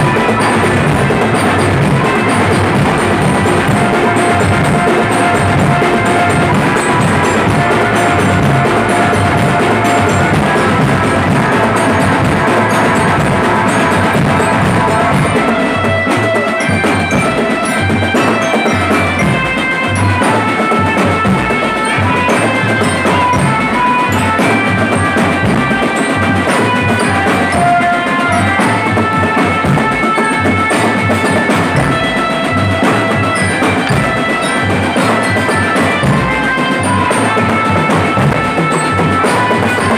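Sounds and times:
high pitched melody notes: 0.0 - 39.9
marching drum band: 0.0 - 39.9.

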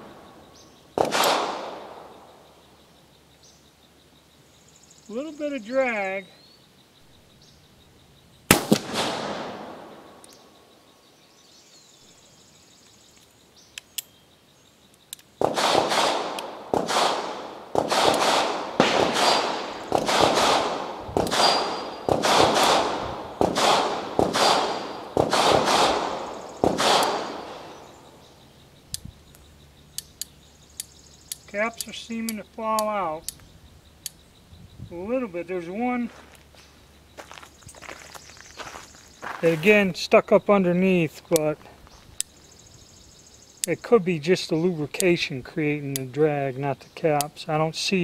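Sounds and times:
revolver gunshots with echo: 1.0 - 2.4, 8.5 - 10.2, 15.4 - 28.2.

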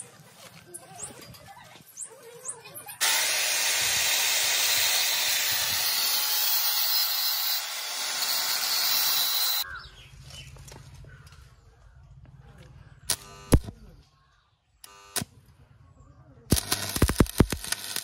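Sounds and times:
angle grinder grinding steel: 3.0 - 9.6.

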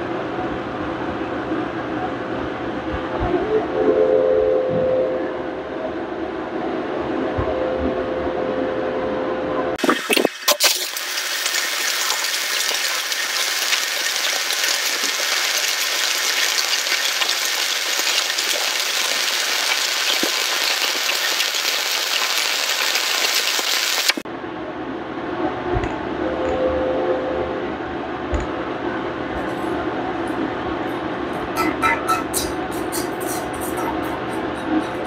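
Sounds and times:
welding arc sizzling and crackling: 9.9 - 24.2.

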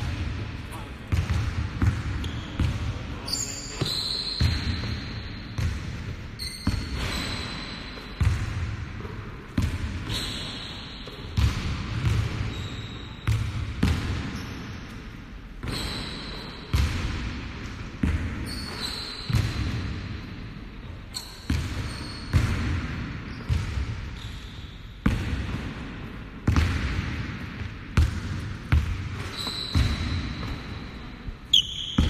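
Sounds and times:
basketball bouncing on wooden floor: 1.1 - 2.9, 3.8 - 10.2, 11.1 - 12.6, 13.2 - 14.4, 18.0 - 20.0, 21.5 - 24.3, 25.0 - 25.8, 26.4 - 30.9.

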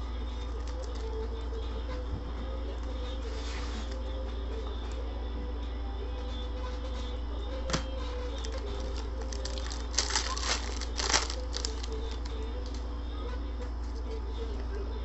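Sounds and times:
foil wrapper tearing and crinkling: 8.4 - 12.8.

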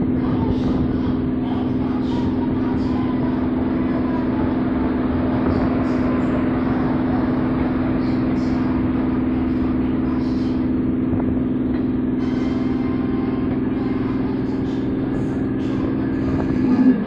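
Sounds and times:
steady low tone: 0.0 - 17.0.

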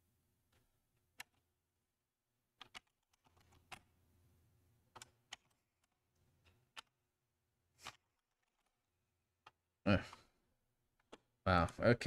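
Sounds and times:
computer keyboard keystrokes: 2.6 - 3.9, 4.9 - 7.0.

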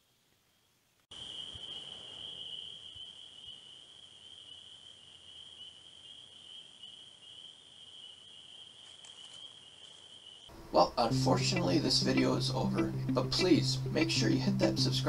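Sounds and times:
high-pitched insect trilling: 1.1 - 10.5
soft background hiss: 10.3 - 15.0.

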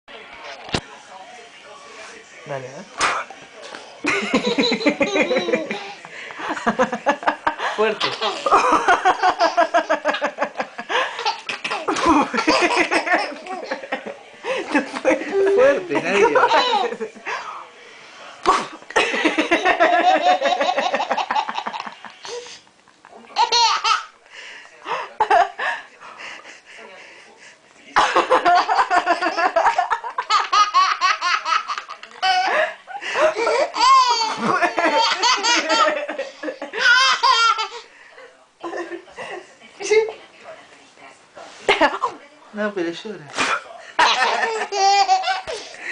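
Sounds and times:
baby laughing: 4.4 - 6.0, 15.3 - 17.0, 23.4 - 24.1, 33.3 - 36.0, 36.8 - 37.8, 44.0 - 45.7.

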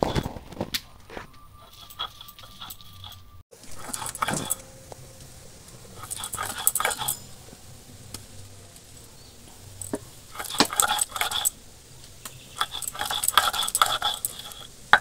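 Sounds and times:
stone roller grinding lentils: 1.5 - 9.1, 9.7 - 11.6, 12.2 - 15.0
bangles clinking: 1.6 - 4.6, 6.0 - 7.5, 9.7 - 11.6, 12.5 - 15.0.

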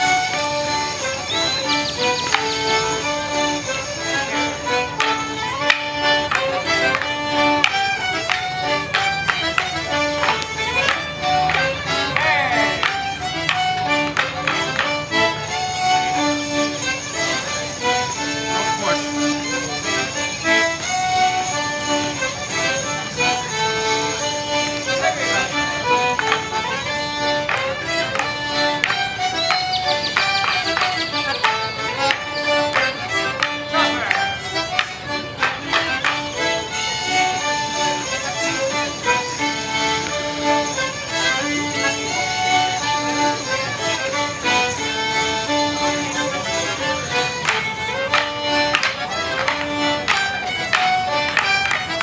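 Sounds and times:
fiddles playing folk dance tune: 0.0 - 52.0
jingling leg bells: 0.0 - 52.0
squeezebox: 0.1 - 4.8.

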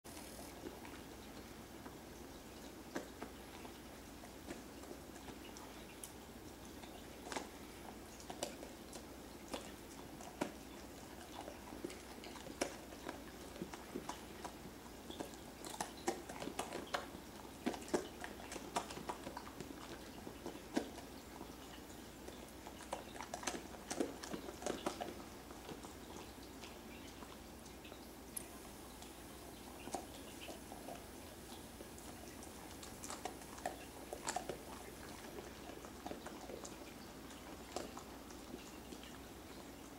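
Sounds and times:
dog crunching a hard treat: 2.7 - 26.8, 31.9 - 39.1.

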